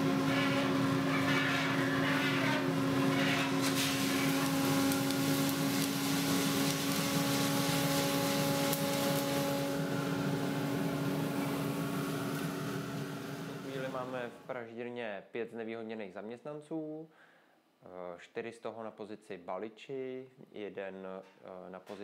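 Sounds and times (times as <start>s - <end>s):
motor and fan hum: 0.0s - 14.5s
coffee beans rattling on metal: 3.0s - 9.4s.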